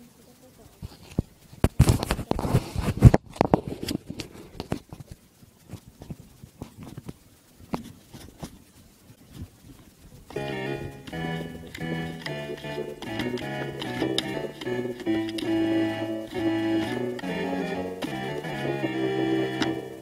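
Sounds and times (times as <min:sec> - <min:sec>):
phone handling rubbing and knocks: 0:10.3 - 0:20.0.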